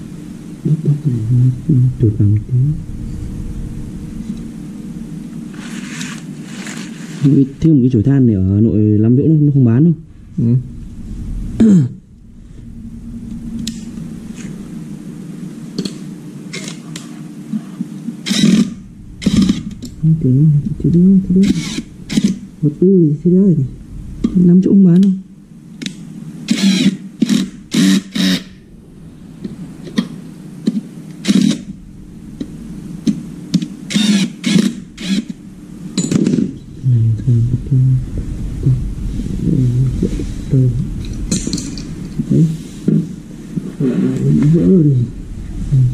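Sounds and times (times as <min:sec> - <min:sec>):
low engine-like hum: 0:00.0 - 0:05.8, 0:07.5 - 0:16.3, 0:18.8 - 0:26.3, 0:31.7 - 0:33.5, 0:34.8 - 0:45.9.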